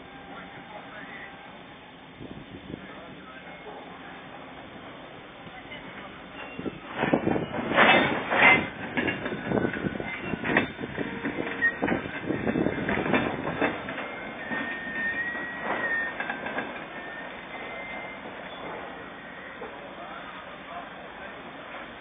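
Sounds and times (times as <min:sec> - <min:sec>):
metallic clanks and knocks: 0:06.4 - 0:14.7
high metallic squeal: 0:07.4 - 0:12.8, 0:14.1 - 0:19.6.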